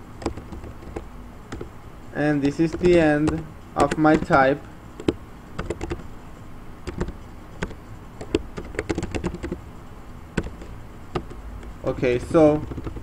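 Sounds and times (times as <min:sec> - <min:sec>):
computer keyboard keys clicking: 0:00.2 - 0:01.7, 0:02.5 - 0:04.4, 0:05.0 - 0:06.0, 0:06.8 - 0:09.6, 0:10.4 - 0:11.7, 0:12.6 - 0:13.0.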